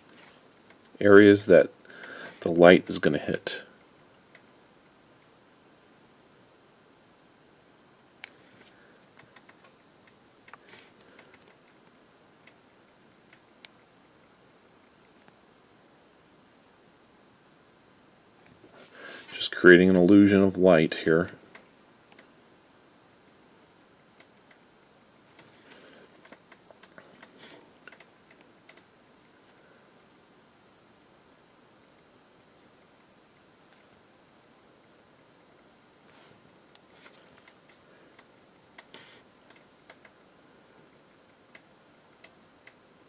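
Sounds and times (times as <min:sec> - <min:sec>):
low steady hiss: 0:00.0 - 0:43.0
steady hiss: 0:17.6 - 0:22.3, 0:32.5 - 0:43.0.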